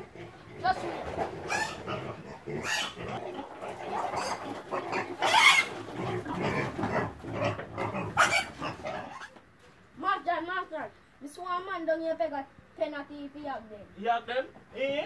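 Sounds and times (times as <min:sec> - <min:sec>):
pigs squealing: 0:00.0 - 0:09.4.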